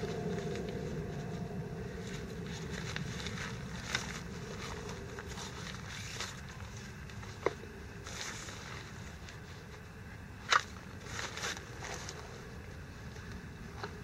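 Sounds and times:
nylon sack rustling: 0.0s - 7.1s
steady low rumble: 0.0s - 14.0s.

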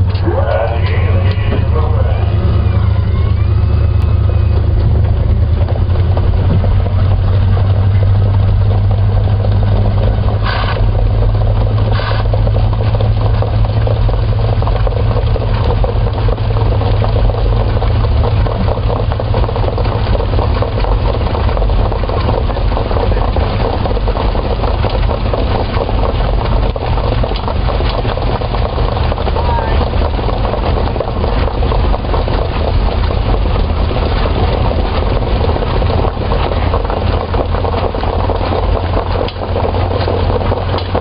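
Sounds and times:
car engine humming: 0.0s - 41.0s.

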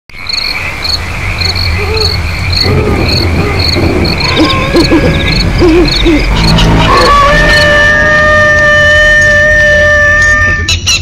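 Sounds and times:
crickets chirping: 0.1s - 9.4s
steady insect drone: 0.2s - 10.0s
low hooting calls: 1.2s - 10.8s
low rumble: 2.2s - 9.4s.

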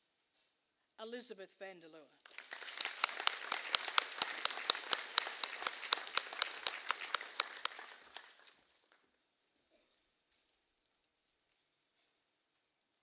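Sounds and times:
nearby hands clapping: 2.3s - 8.6s
audience applauding: 2.3s - 8.9s.

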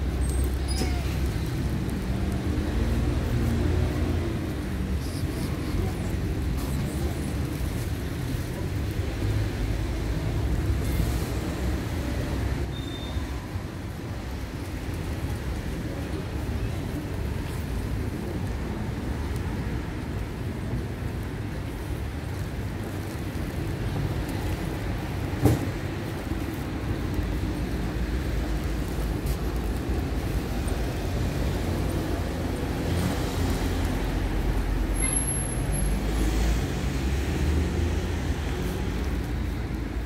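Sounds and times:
city traffic rumble: 0.0s - 40.0s.

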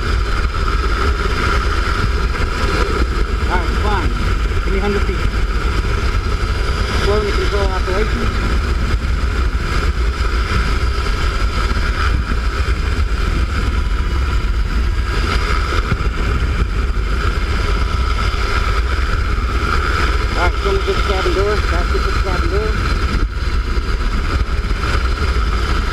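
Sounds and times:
helicopter rotor and turbine: 0.0s - 25.9s
wind on microphone: 0.0s - 25.9s.

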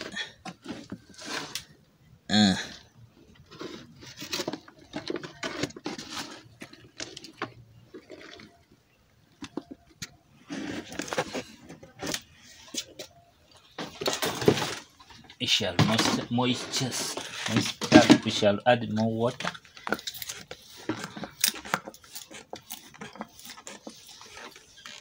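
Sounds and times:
scraping in plastic basin: 15.6s - 18.5s.

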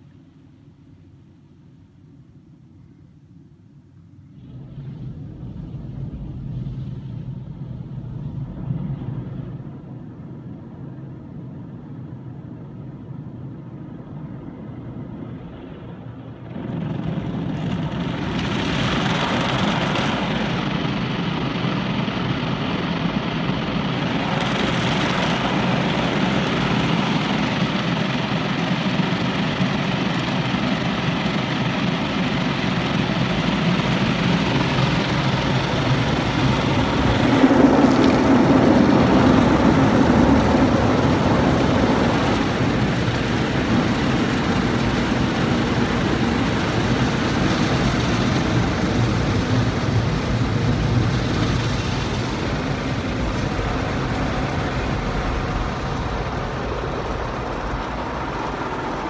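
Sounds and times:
low rumble: 4.2s - 13.1s, 13.8s - 59.0s.

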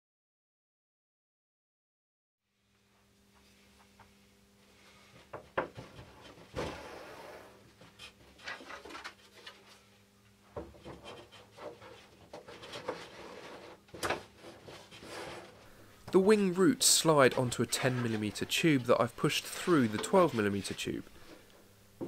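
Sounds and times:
tube rubbing scrape: 11.0s - 15.7s.

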